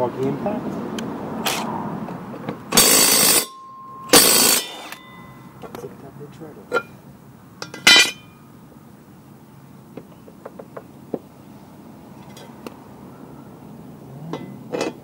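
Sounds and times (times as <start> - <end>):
metal clank with ring: 2.7 - 5.5, 7.6 - 8.4.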